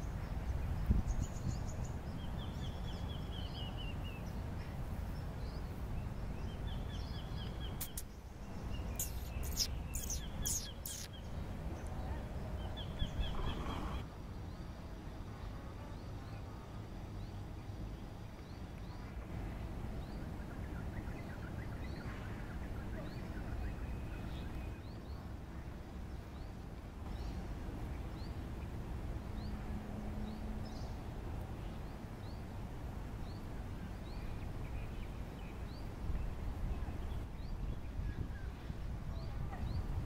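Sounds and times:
bird high rising chirp: 6.4s - 11.4s.

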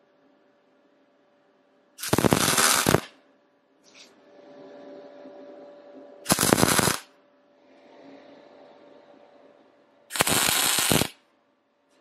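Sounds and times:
faint steady hum: 0.0s - 12.0s
welding arc bursts: 2.0s - 3.1s, 6.3s - 7.1s, 10.1s - 11.2s.

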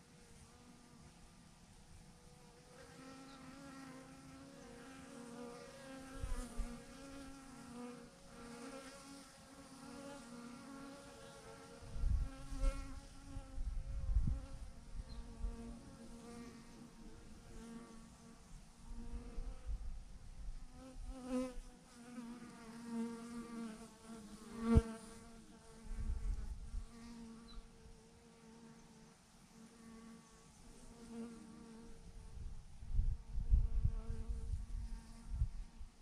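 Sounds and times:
bee swarm buzzing: 2.2s - 19.9s, 20.8s - 27.7s.

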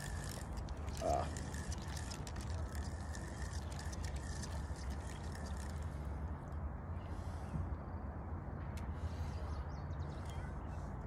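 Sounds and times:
fishing reel clicking: 0.0s - 6.1s.

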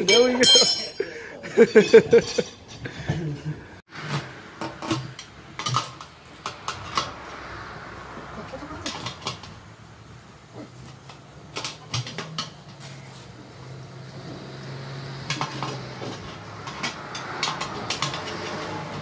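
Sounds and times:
tyre irons clinking on metal rim: 0.0s - 1.2s, 1.8s - 2.8s, 15.3s - 19.0s.

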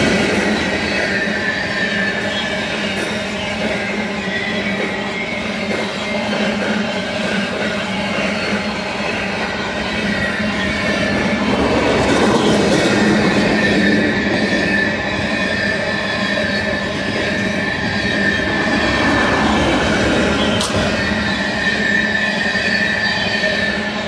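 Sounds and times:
freight train rumbling past: 0.0s - 24.0s
high wheel squeal: 0.0s - 24.0s.

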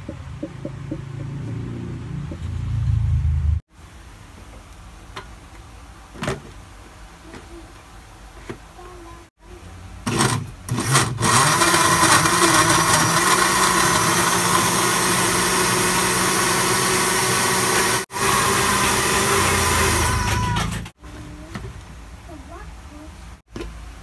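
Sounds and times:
electric blender motor: 10.1s - 20.9s.

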